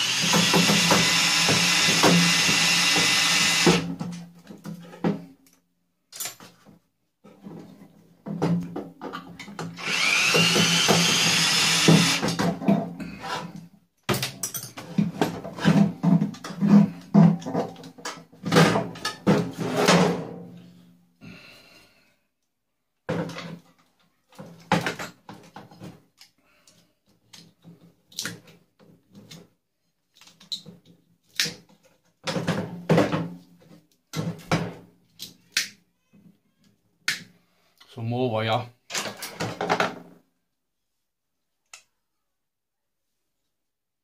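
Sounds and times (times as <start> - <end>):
cordless drill running: 0.0 - 3.8, 9.8 - 12.4.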